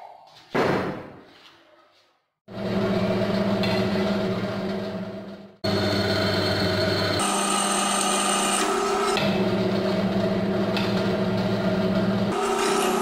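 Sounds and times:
drill press motor hum: 0:02.5 - 0:13.0
drill bit whining in metal: 0:05.7 - 0:10.1, 0:12.3 - 0:13.0.

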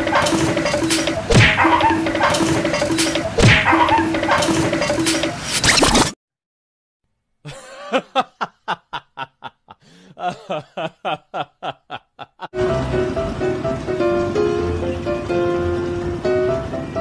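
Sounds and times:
person snickering laugh: 0:07.5 - 0:12.6.

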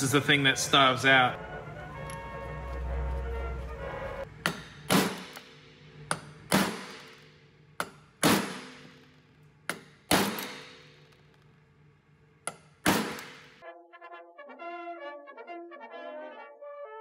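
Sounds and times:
brass music: 0:00.0 - 0:04.4, 0:13.6 - 0:17.0
hammer striking metal: 0:04.4 - 0:09.1, 0:09.7 - 0:11.0.

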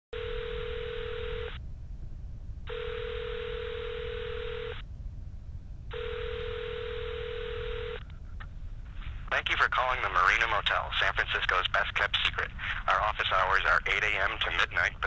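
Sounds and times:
telephone ringback tone: 0:00.2 - 0:01.6, 0:02.7 - 0:04.8, 0:05.9 - 0:08.0
low phone line rumble: 0:00.2 - 0:15.0.

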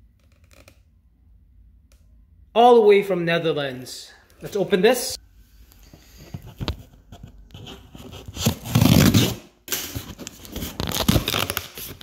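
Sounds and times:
knife slitting packing tape: 0:08.2 - 0:12.0.

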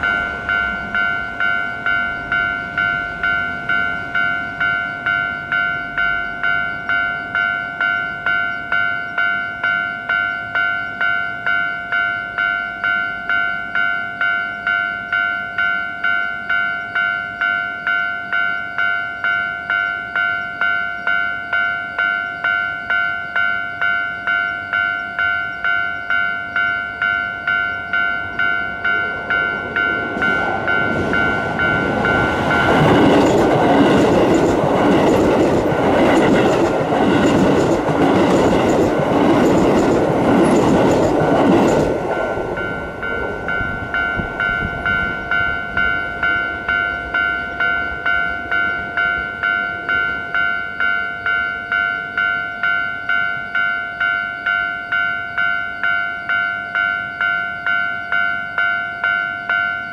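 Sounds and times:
level-crossing warning bell clanging: 0:00.0 - 0:59.9
train wheels clattering over rail joints: 0:30.1 - 0:42.2.

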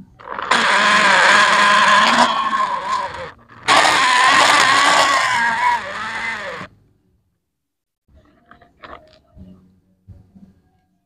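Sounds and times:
vehicle engine sound: 0:00.0 - 0:06.7.

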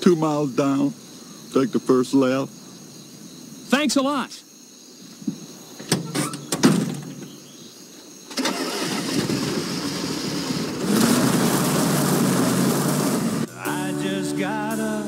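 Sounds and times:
short clunks: 0:05.2 - 0:07.5
car engine starting and revving: 0:08.3 - 0:13.5.

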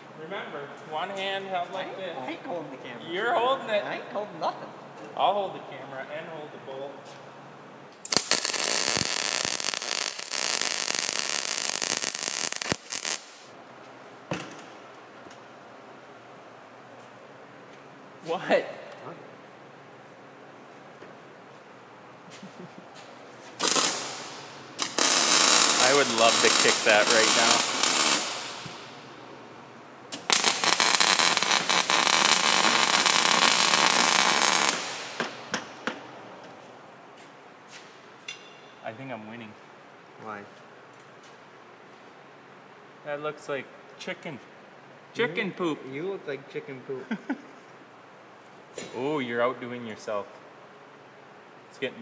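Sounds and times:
sharp pops: 0:08.0 - 0:13.5
welder arc crackling: 0:08.0 - 0:13.6, 0:23.6 - 0:29.1, 0:30.1 - 0:35.7.

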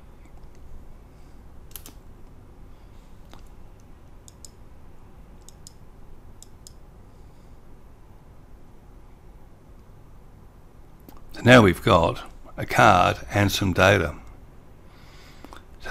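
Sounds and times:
low steady hum: 0:00.0 - 0:15.9
computer mouse clicking: 0:00.2 - 0:00.7, 0:01.7 - 0:02.4, 0:03.2 - 0:04.6, 0:05.4 - 0:05.8, 0:06.4 - 0:06.8.

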